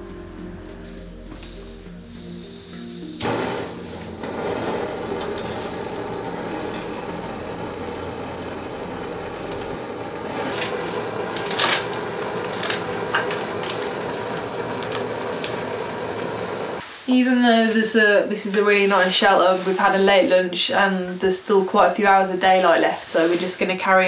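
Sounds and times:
gas stove hissing: 0.8 - 17.4
plastic packet crinkling: 10.3 - 15.6.

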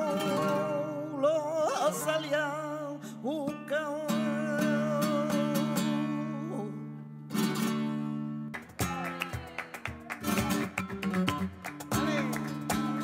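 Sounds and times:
woman singing with vibrato: 0.0 - 6.9
flamenco guitar strumming: 0.0 - 13.0.

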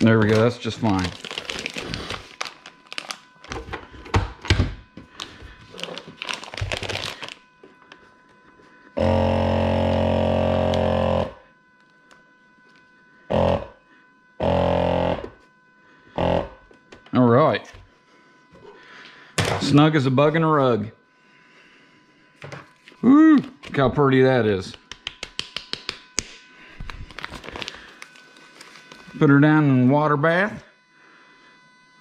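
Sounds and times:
plastic bag crinkling: 0.0 - 3.7, 5.1 - 7.4, 26.8 - 29.2
vacuum sealer pump running: 0.0 - 24.9, 26.0 - 32.0.

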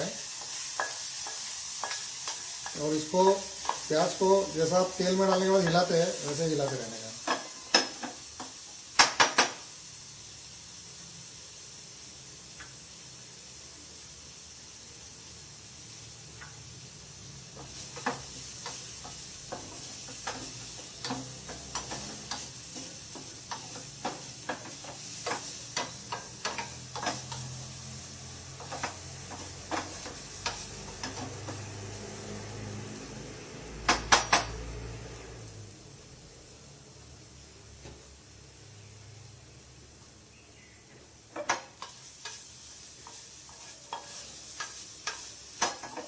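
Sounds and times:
onions sizzling faintly: 0.0 - 46.0
spatula tapping pan: 0.4 - 2.8, 17.6 - 27.6, 41.3 - 46.0.

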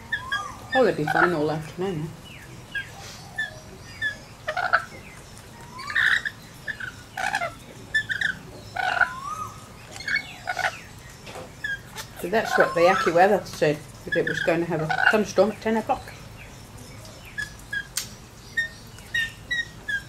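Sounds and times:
harsh bird calls: 0.0 - 20.0
lorikeets chirping: 0.0 - 20.0.

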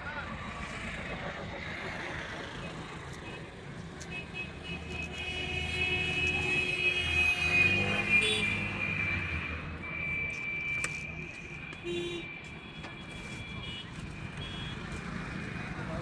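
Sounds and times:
vehicle passing by: 7.4 - 9.4.

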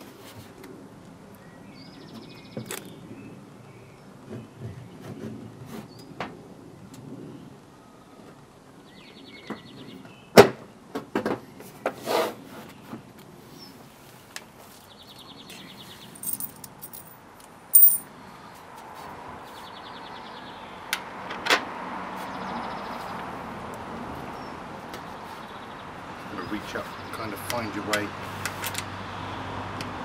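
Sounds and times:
light metallic clinks: 16.2 - 17.2, 17.8 - 18.1.

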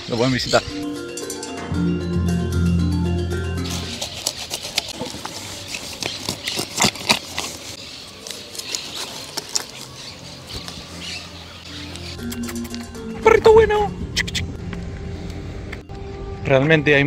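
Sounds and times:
knife scraping fish scales: 3.6 - 9.9.

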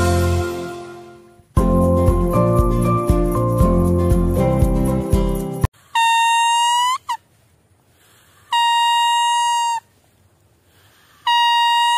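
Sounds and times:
background music: 0.0 - 5.7
leaf whistle notes: 8.5 - 10.0, 11.1 - 11.9.

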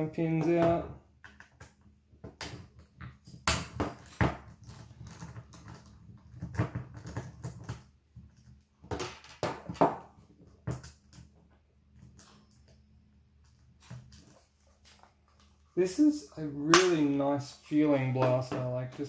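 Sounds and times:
plastic parts clicking and knocking: 0.3 - 12.8.

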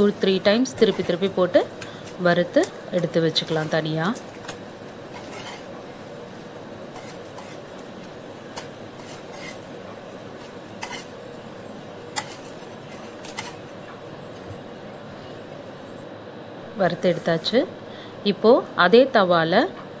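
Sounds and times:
metal spatula scraping frying pan: 0.0 - 4.3, 5.1 - 5.8, 6.9 - 7.9, 8.5 - 9.8, 10.8 - 11.2, 12.1 - 13.6
hot oil sizzling: 0.0 - 14.8.

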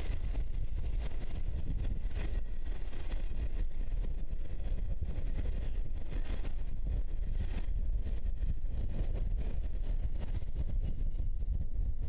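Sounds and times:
freight train rumbling over viaduct: 0.0 - 12.0
wind buffeting microphone: 0.0 - 12.0.

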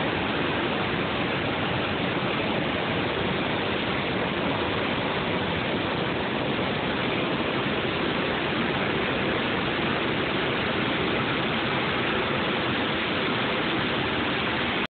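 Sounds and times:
whitewater rushing over rocks: 0.0 - 14.9.

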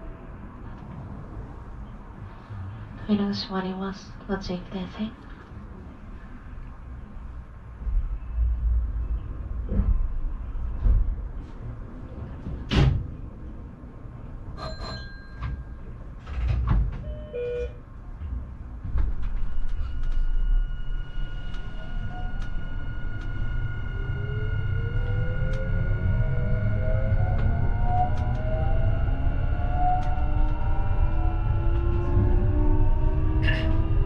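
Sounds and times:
train doors sliding shut: 12.1 - 13.4
train motor whine: 19.0 - 34.0
train motor hum rising: 19.3 - 34.0.

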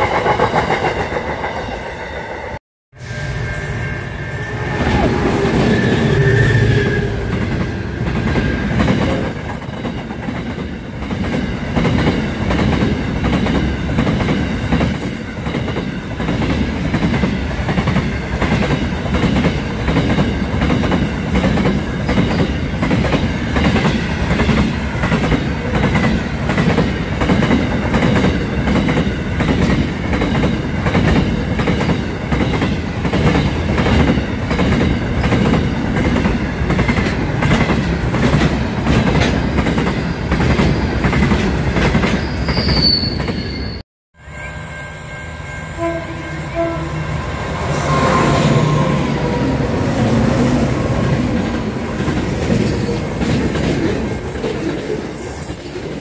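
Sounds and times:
train wheels clickety-clack: 0.0 - 2.3, 7.2 - 43.4, 50.9 - 56.0.

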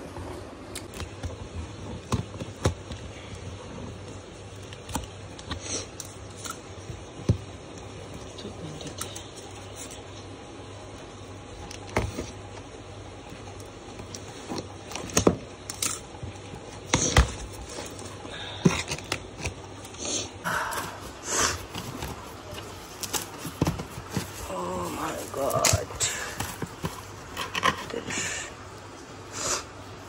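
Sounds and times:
plastic wrapping rustling: 18.8 - 28.4
cardboard flaps rustling and scraping: 21.6 - 28.1.

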